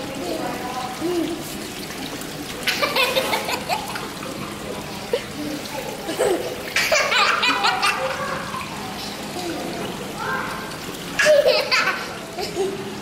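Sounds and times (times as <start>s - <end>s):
water running and splashing: 0.0s - 13.0s
young child laughing: 2.6s - 4.0s, 6.0s - 8.4s, 11.2s - 12.9s.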